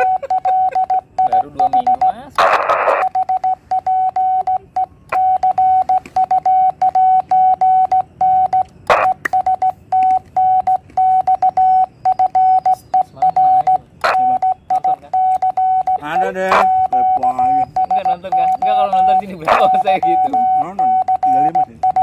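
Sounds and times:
keying clicks: 0.0 - 2.3
morse code tone: 0.0 - 22.0
short bursts of noise: 2.4 - 3.8.

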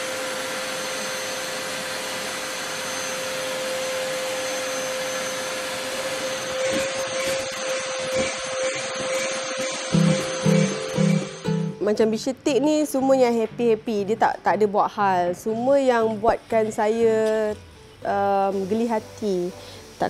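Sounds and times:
vacuum cleaner whining: 0.0 - 11.8.

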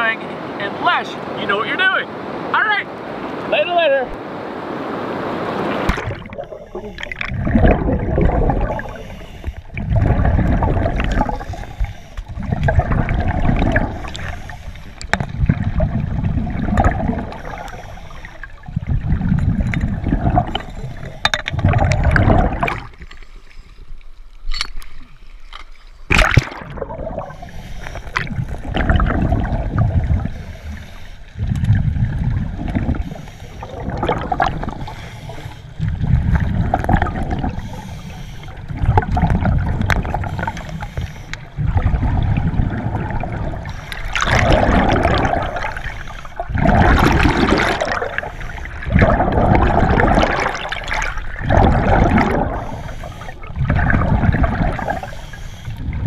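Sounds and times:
water splash: 5.1 - 23.1, 26.1 - 30.6, 33.7 - 35.2, 35.8 - 37.8, 38.7 - 55.1
exhaust bubbles gurgling: 5.6 - 23.1, 26.1 - 56.0
regulator inhale hiss: 8.8 - 9.8, 11.3 - 12.3, 13.9 - 15.0, 17.4 - 18.6, 27.3 - 28.2, 30.3 - 31.4, 33.0 - 33.7, 34.8 - 35.8, 37.5 - 38.7, 40.2 - 41.5, 43.6 - 44.2, 45.8 - 46.5, 48.1 - 48.8, 52.6 - 53.5, 54.8 - 55.8.

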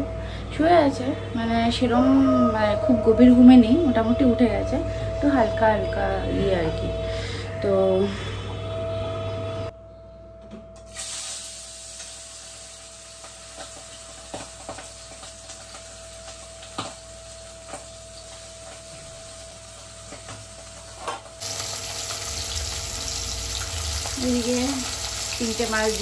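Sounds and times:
fish sizzling in hot oil: 10.9 - 20.0, 21.4 - 26.0.

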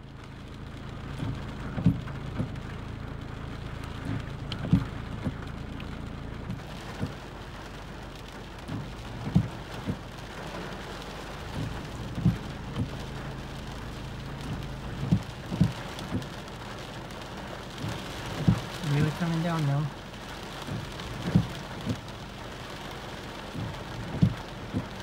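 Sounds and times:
heavy rain on car roof: 0.0 - 25.0.

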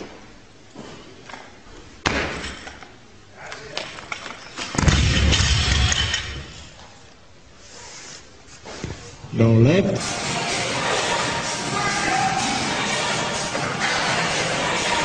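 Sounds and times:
barbell crashing onto platform: 4.7 - 6.7.

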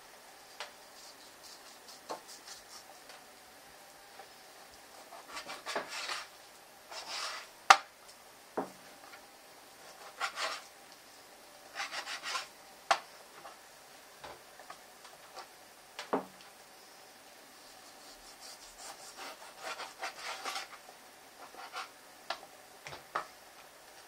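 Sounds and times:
knife sawing through raw chicken: 17.8 - 20.7.

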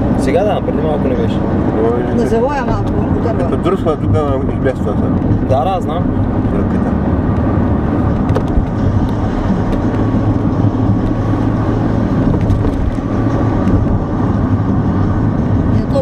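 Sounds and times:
car engine hum: 0.0 - 16.0
knocks and rattles in car: 4.5 - 15.7.

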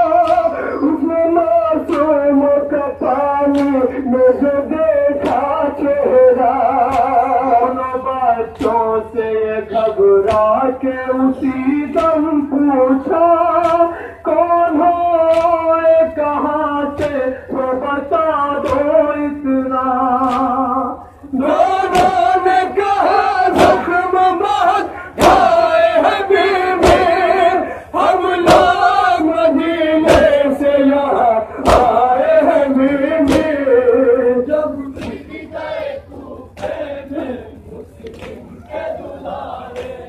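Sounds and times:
men chanting a lament: 0.0 - 40.0
chest-beating thuds: 5.0 - 6.1, 21.5 - 27.5, 28.4 - 34.0, 34.8 - 36.9.

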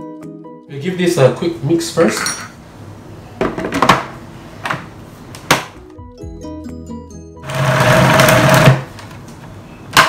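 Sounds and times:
food processor motor running: 7.4 - 8.9.

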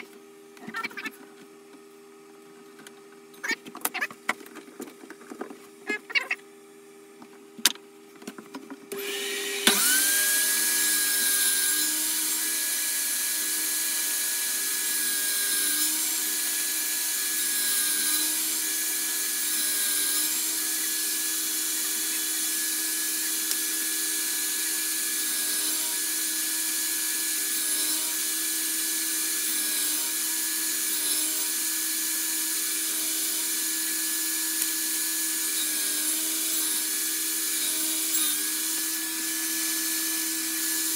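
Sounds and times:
table saw motor whining: 8.9 - 40.9.

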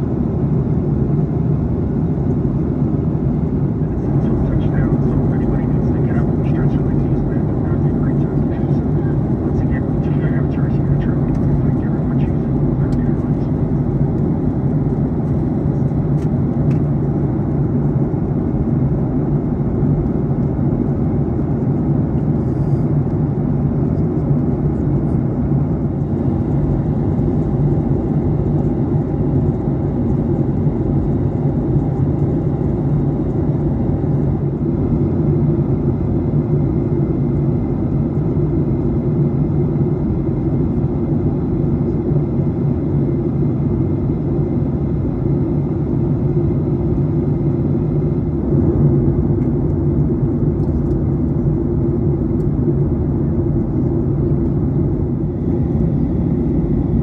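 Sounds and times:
airplane cabin rumble: 0.0 - 57.0.

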